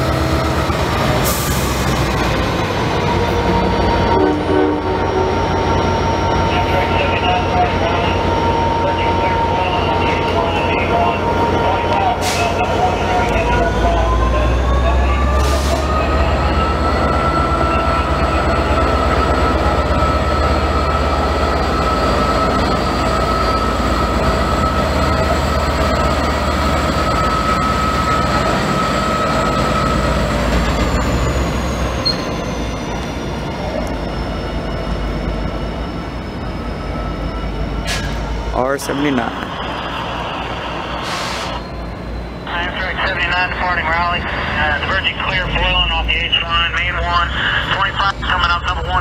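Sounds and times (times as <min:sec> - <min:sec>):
locomotive rumble: 0:00.0 - 0:49.0
train wheels squealing: 0:05.2 - 0:43.0.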